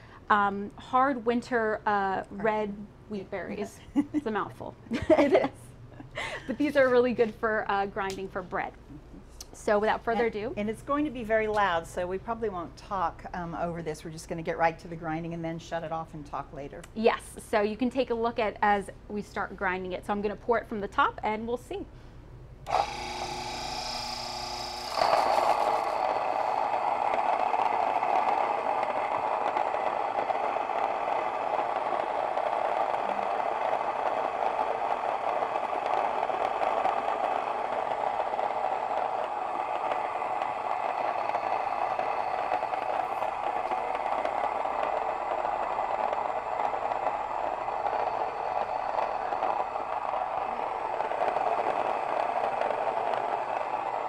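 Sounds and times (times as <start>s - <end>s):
electric grain mill grinding: 22.7s - 54.0s.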